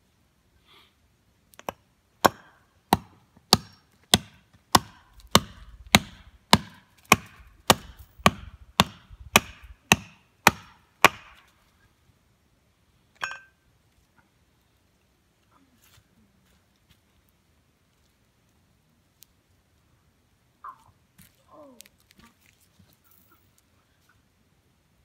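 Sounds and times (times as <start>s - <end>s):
axe chopping wood: 1.6s - 11.5s.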